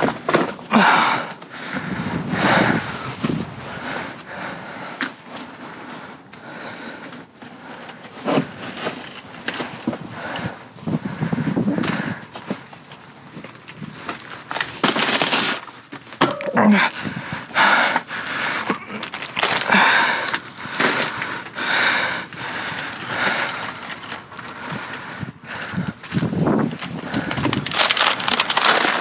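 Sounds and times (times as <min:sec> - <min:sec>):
plastic bags rustling: 0:08.0 - 0:16.8, 0:18.5 - 0:29.0.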